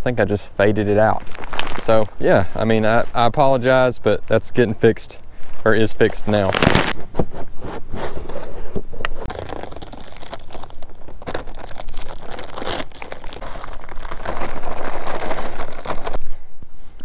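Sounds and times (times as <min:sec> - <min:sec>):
plastic bag crinkling: 0:01.0 - 0:03.4, 0:06.4 - 0:07.0, 0:09.3 - 0:16.2.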